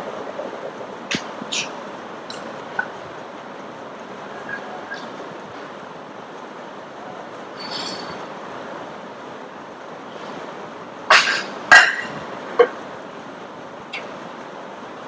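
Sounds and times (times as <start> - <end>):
gym background noise: 0.0 - 15.0
metallic clanks of gym equipment: 7.6 - 8.3, 11.1 - 12.8.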